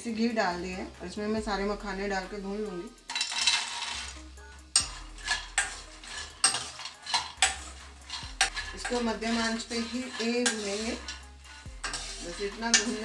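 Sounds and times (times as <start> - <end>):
dried nuts rattling into metal pan: 2.9 - 13.0
metal spatula scraping pan: 2.9 - 13.0.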